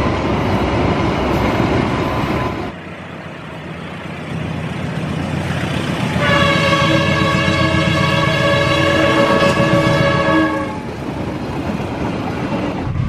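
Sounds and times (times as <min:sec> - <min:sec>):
diesel locomotive engine: 0:00.0 - 0:13.0
train wheels rumbling on rails: 0:00.0 - 0:13.0
multi-tone train horn: 0:06.1 - 0:10.9.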